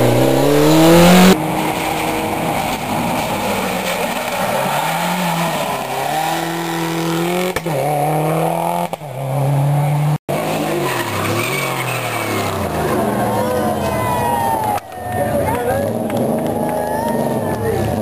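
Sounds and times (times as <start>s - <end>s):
rally car engines revving: 0.0s - 18.0s.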